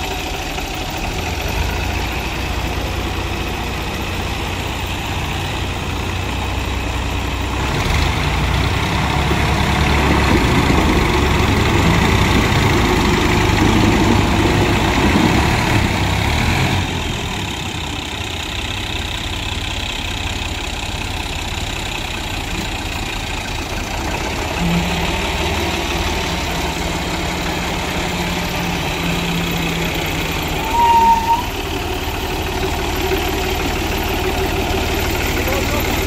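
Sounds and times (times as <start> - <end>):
diesel tractor engines running: 0.0 - 36.0.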